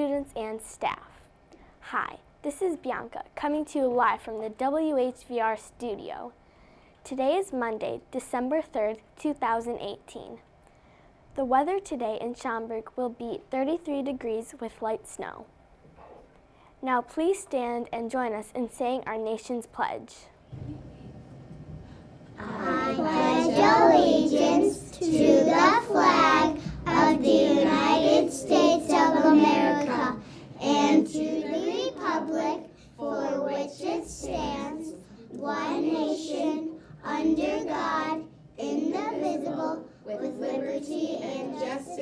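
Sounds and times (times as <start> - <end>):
girls reciting together: 21.8 - 42.0.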